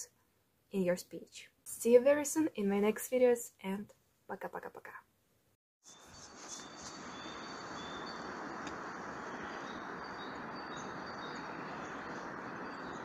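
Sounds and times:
small birds chirping: 5.9s - 13.0s
steady rushing noise: 5.9s - 13.0s.

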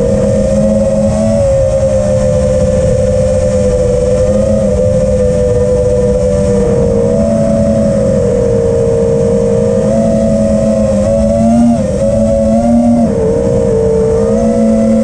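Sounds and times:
drone motors whining: 0.0s - 15.0s
wind rumble on microphone: 0.0s - 15.0s.

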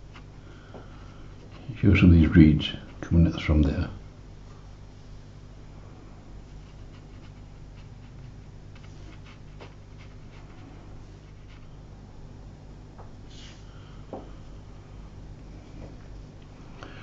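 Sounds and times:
low electrical hum: 0.0s - 17.0s
brush strokes on paper: 6.4s - 11.8s.

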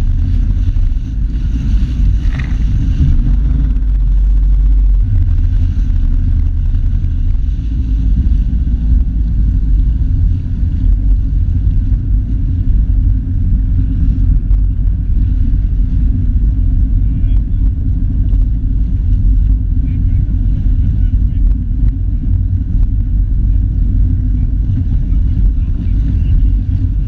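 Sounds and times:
water splashing against hull: 0.0s - 16.7s
jet ski engine rumbling: 0.0s - 27.0s.

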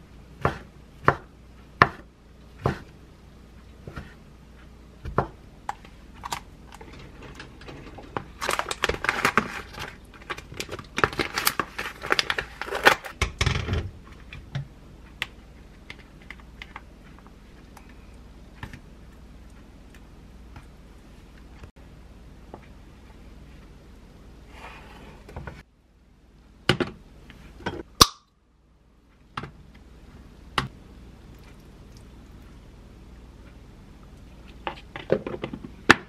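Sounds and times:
plastic packaging crinkling: 8.3s - 13.1s.

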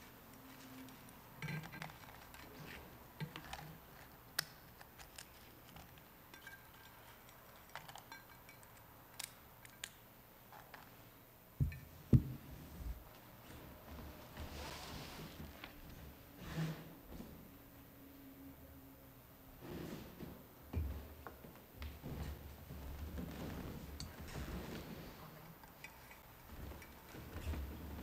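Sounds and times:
small metal vessels clinking: 5.7s - 8.8s
dull knocks of vessels set down: 11.6s - 12.5s.

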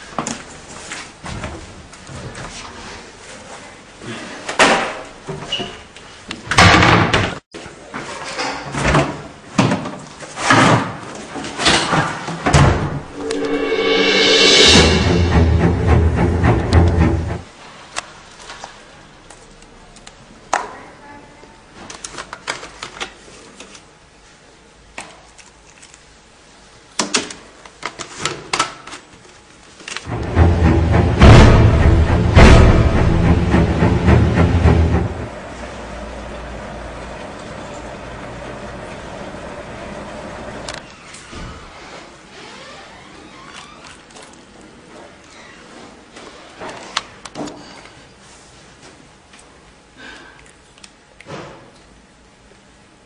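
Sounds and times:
loud deep music: 13.2s - 17.5s, 30.1s - 35.6s.

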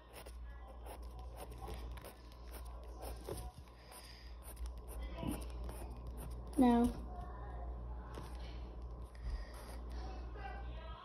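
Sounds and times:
pencil scratching on paper: 0.0s - 6.4s
low steady hum: 0.0s - 11.0s.

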